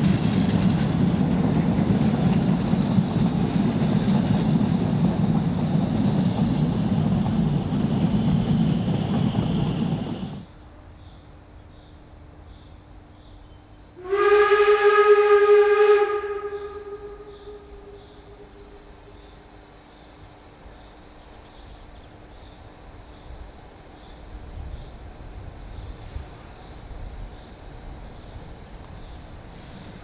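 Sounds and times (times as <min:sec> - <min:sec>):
train rumble: 0:00.0 - 0:11.6, 0:12.3 - 0:30.0
steam locomotive whistle blast: 0:14.0 - 0:19.2.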